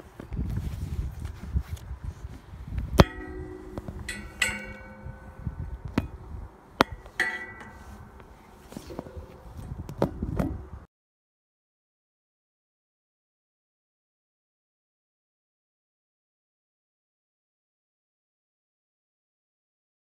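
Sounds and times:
metal railings clinking: 3.0s - 10.8s.

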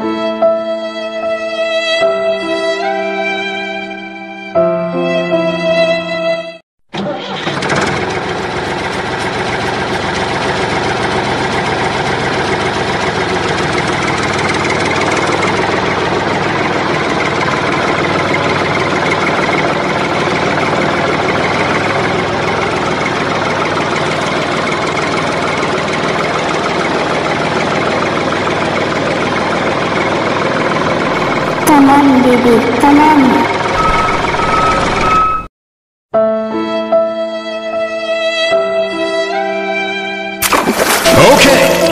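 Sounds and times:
truck engine idling: 7.4s - 35.4s.

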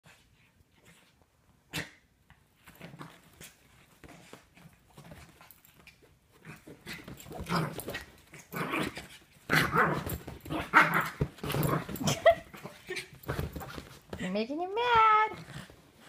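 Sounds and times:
small dog growling and barking: 1.7s - 2.1s, 6.4s - 13.7s.

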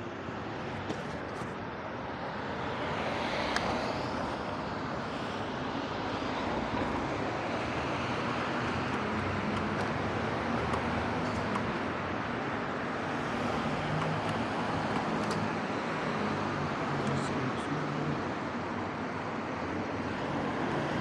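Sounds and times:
traffic on wet road: 0.0s - 21.0s.

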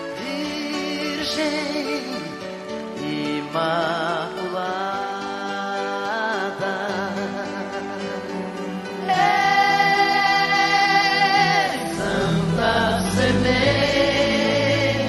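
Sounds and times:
choir singing devotional song: 8.9s - 15.0s.

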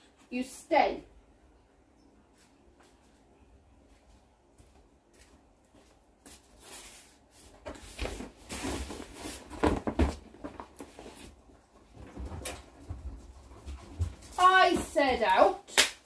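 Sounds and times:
footsteps on tiled floor: 2.3s - 8.7s
rustling: 6.3s - 15.4s.

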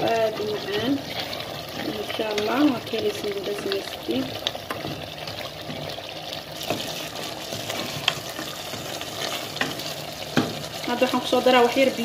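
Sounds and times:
spoon stirring thick stew: 0.0s - 11.8s
spoon scraping metal pot: 0.1s - 2.6s, 6.6s - 10.0s.

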